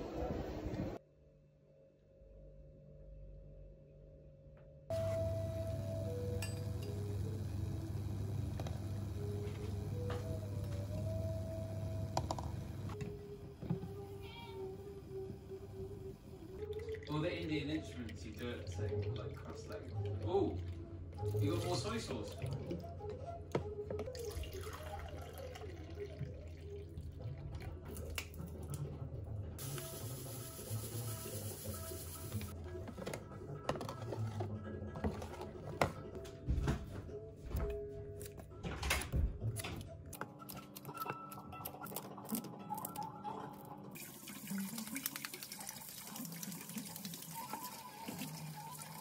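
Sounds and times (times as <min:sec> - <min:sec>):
water pouring into plastic cup: 0:24.1 - 0:28.0, 0:44.0 - 0:49.0.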